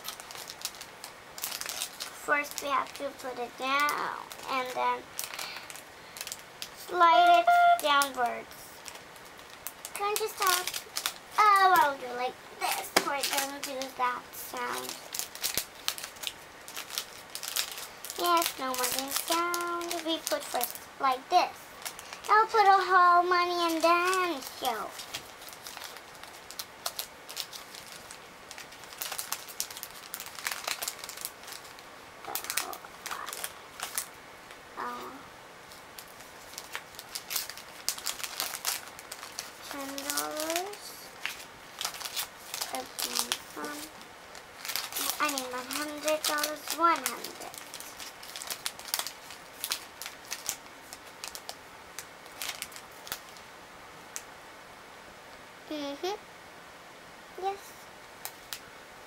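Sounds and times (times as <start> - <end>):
paper notes rustling: 10.0 - 20.7, 35.7 - 44.0, 44.6 - 51.5
paper banknotes rustling: 44.6 - 51.4.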